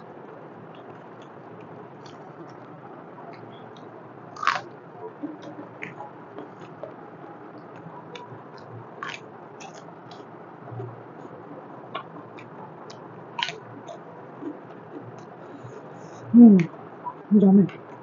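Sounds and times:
person chewing: 4.4s - 4.6s, 9.0s - 9.8s
lip smacks and mouth clicks: 7.8s - 10.2s, 11.9s - 15.3s.

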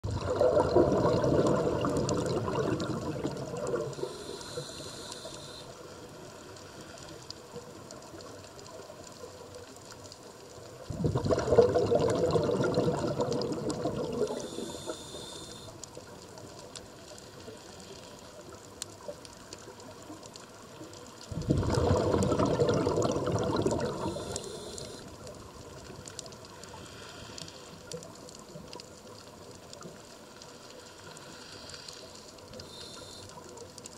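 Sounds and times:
rush of bubbles underwater: 0.0s - 5.6s, 10.7s - 16.5s, 20.6s - 26.8s
faint clicks and crackle: 0.0s - 33.9s
regulator inhalation hiss: 3.8s - 5.9s, 14.3s - 15.8s, 23.9s - 25.1s, 26.6s - 27.7s, 31.0s - 33.4s.

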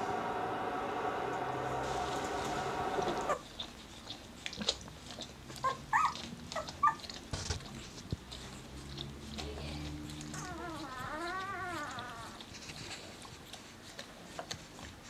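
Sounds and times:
steady hum: 0.0s - 3.4s
soft shuffling and licking: 0.2s - 15.0s
puppies squeaking and whimpering: 5.5s - 7.8s, 8.4s - 13.1s.

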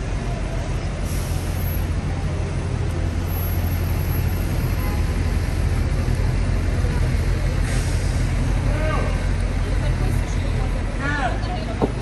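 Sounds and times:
street traffic: 0.0s - 12.0s
vehicle engine rumbling nearby: 0.0s - 12.0s.

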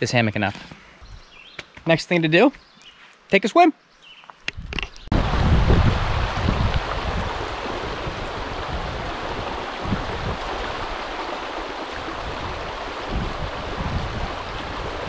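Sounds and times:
river water rushing: 5.2s - 15.0s.

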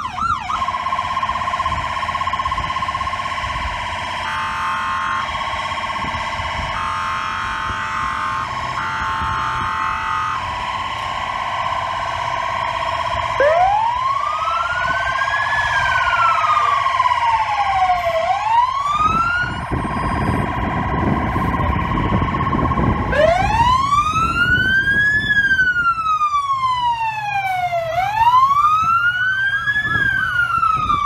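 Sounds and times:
pulsing siren tone: 0.0s - 31.0s
siren winding up and down: 0.0s - 31.0s
steady high siren: 0.0s - 31.0s
low rumble: 19.0s - 24.6s.

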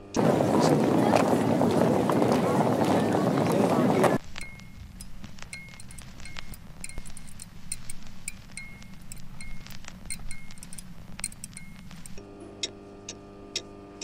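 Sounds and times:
steady multi-tone hum: 0.0s - 14.0s
sharp ticks: 4.2s - 14.0s
light clinks with ringing tone: 4.4s - 12.2s.

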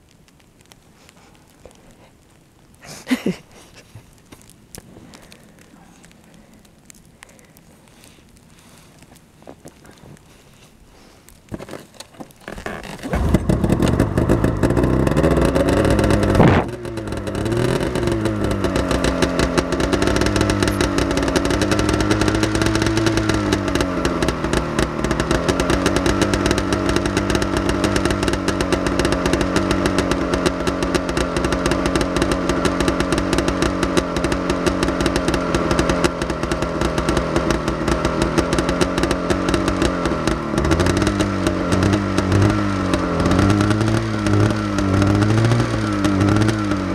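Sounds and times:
snowmobile engine idling: 12.6s - 46.9s.

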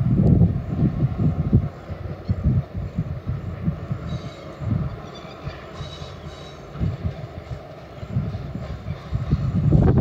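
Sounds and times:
distant diesel locomotives: 0.0s - 10.0s
low buffeting rumble: 0.0s - 10.0s
faint high squeal: 4.0s - 6.7s.

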